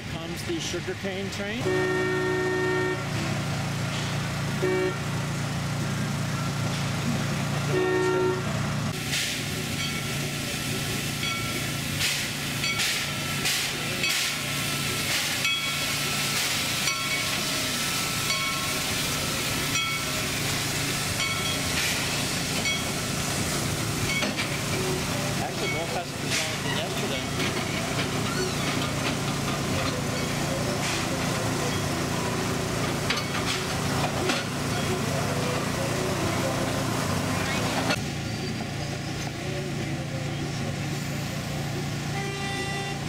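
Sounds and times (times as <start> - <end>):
steam locomotive whistle toots: 1.6 - 3.1, 4.6 - 5.0, 7.7 - 8.5, 42.1 - 43.0
train cars clattering past: 3.0 - 42.8
steam hissing: 8.9 - 27.2.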